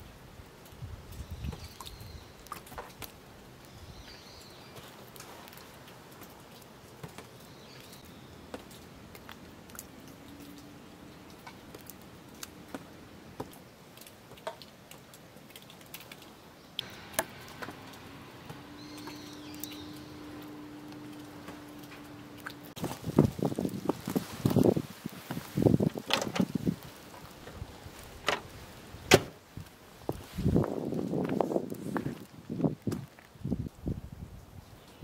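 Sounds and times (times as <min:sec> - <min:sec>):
water drops dripping on ice and wood: 0:00.6 - 0:03.8, 0:04.8 - 0:27.6
faint bird chirps: 0:16.7 - 0:21.8
faint steady hum: 0:16.8 - 0:22.8.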